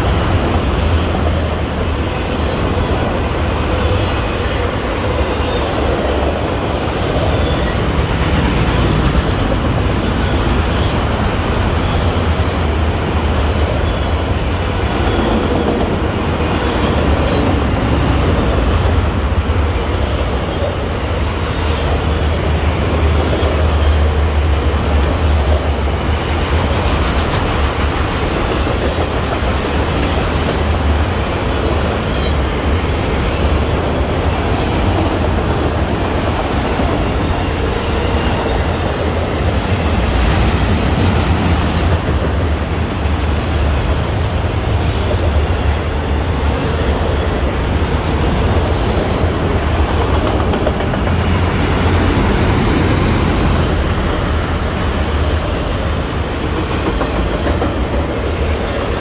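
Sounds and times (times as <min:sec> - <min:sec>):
train wheels rumbling on rails: 0:00.0 - 0:59.0.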